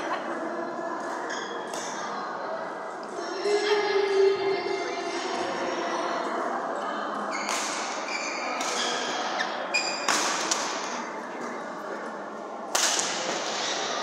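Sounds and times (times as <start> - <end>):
racket striking shuttlecock: 7.5 - 8.0, 8.6 - 9.2, 10.0 - 11.1, 12.7 - 13.8.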